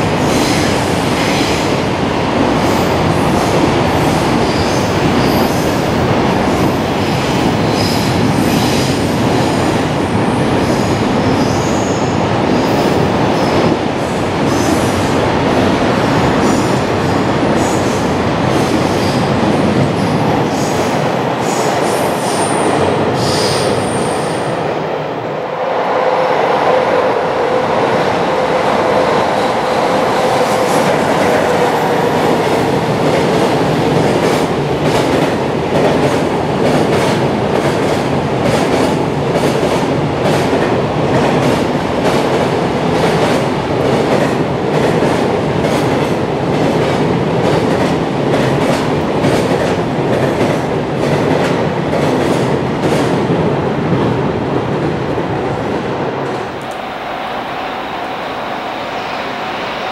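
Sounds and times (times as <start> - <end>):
train wheels rumbling on rail: 0.0 - 59.9
clickety-clack over rail joints: 32.4 - 53.4.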